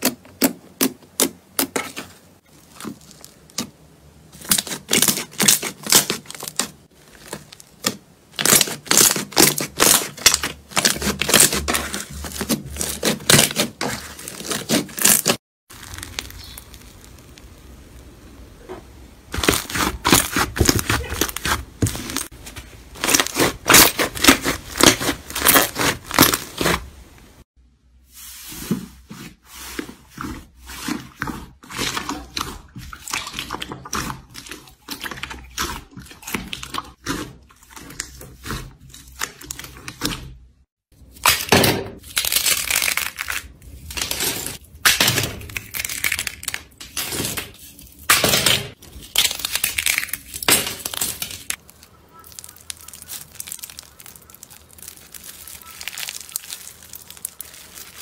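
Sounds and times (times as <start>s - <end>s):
brittle slime shell crunching: 0.8s - 18.1s, 19.3s - 26.9s, 41.0s - 58.0s
slime crackling and popping: 4.3s - 18.3s, 19.3s - 26.9s, 41.2s - 46.8s, 48.1s - 58.0s.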